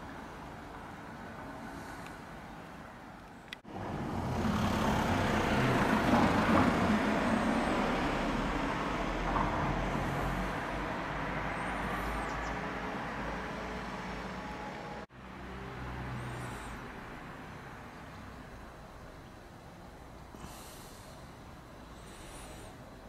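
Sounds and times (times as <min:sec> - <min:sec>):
motor vehicle passing: 0:03.6 - 0:19.0.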